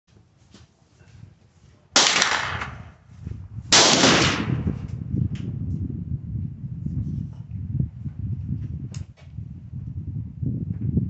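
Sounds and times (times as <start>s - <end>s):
gunshots with echo: 2.0s - 2.9s, 3.7s - 4.7s.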